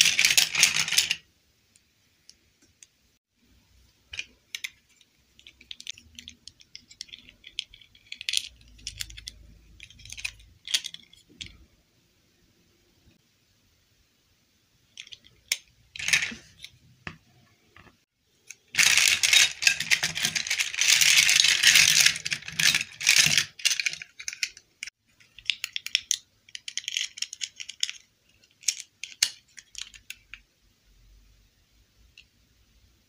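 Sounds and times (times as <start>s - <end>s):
plastic toys rattling and clicking: 0.0s - 1.2s, 4.0s - 11.7s, 14.9s - 16.8s, 18.4s - 30.4s.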